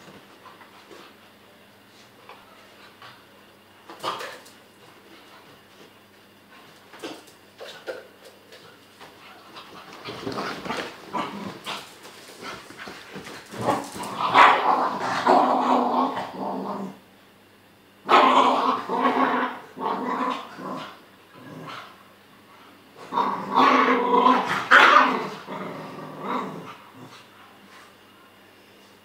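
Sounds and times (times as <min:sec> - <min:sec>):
dogs growling: 0:09.4 - 0:17.0, 0:18.1 - 0:22.0, 0:23.0 - 0:27.3.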